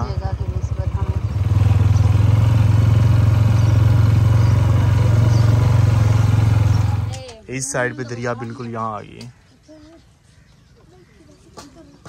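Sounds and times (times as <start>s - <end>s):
motorcycle engine running: 0.0s - 7.4s.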